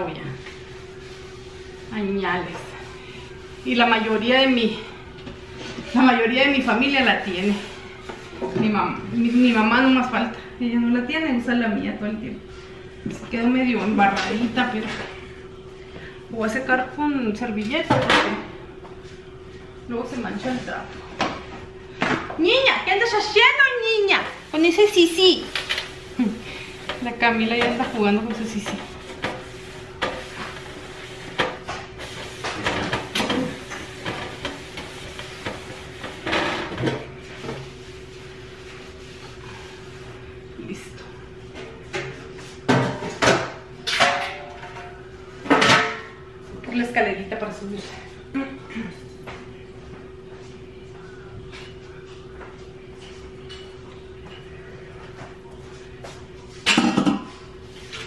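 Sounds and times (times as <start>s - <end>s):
steady electrical hum: 0.0s - 58.0s
paper towel squeaking on glaze: 24.0s - 40.2s
metal cookware clattering: 43.8s - 45.0s.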